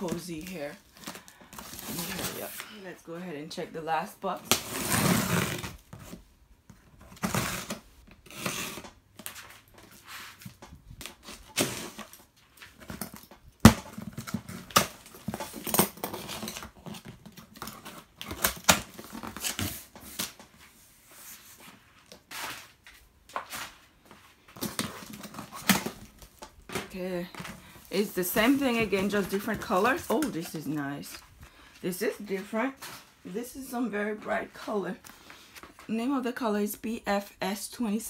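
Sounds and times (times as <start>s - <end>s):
cardboard flaps tearing open: 4.4s - 6.2s, 7.0s - 9.6s, 11.0s - 20.4s, 24.6s - 31.2s.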